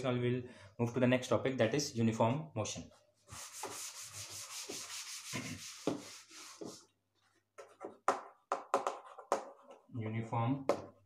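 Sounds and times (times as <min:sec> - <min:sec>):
duster rubbing chalkboard: 0:03.3 - 0:06.9.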